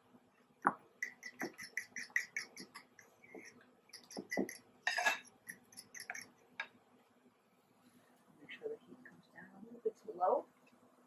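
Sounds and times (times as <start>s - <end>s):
fork clicking against bowl: 1.0s - 2.9s, 3.9s - 6.3s
fork scraping bowl: 1.0s - 6.4s.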